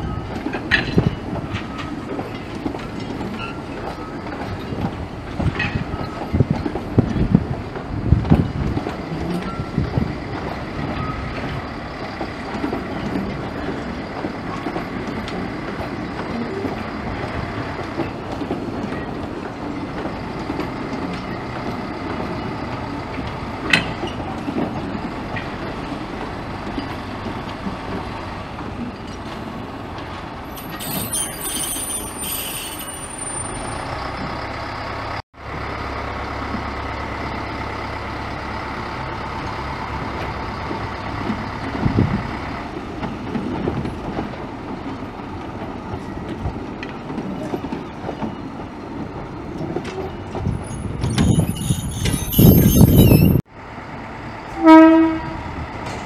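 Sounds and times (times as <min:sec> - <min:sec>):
diesel locomotive engine hum: 0:00.0 - 0:56.0
high squeal: 0:30.6 - 0:34.0, 0:50.6 - 0:53.4.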